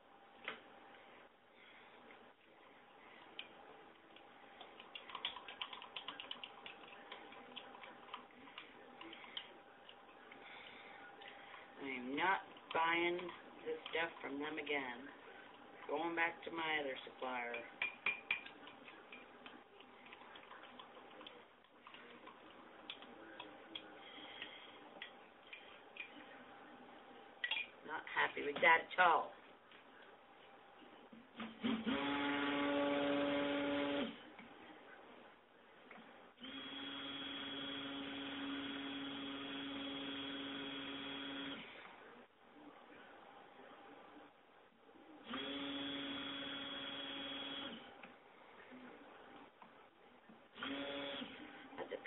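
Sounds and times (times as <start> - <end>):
stick blender motor whine: 31.8 - 34.1.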